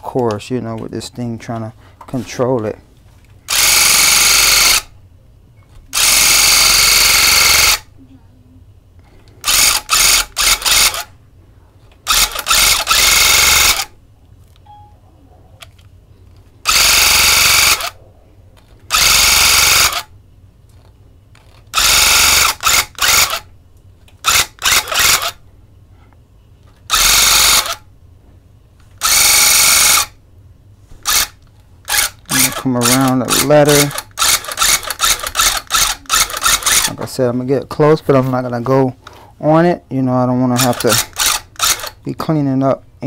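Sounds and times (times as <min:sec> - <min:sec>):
electric tufting gun running: 0:03.5 - 0:04.9, 0:05.9 - 0:07.9, 0:09.5 - 0:11.1, 0:12.1 - 0:13.9, 0:16.6 - 0:18.0, 0:18.9 - 0:20.1, 0:21.8 - 0:23.4, 0:24.2 - 0:25.4, 0:26.9 - 0:27.8, 0:29.0 - 0:30.1, 0:31.1 - 0:31.3, 0:31.9 - 0:36.9.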